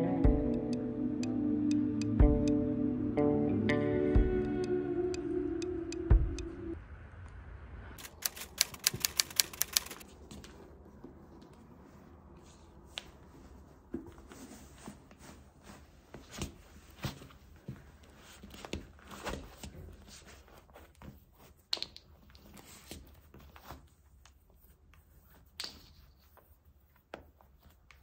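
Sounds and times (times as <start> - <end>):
rustling: 8.0 - 10.6.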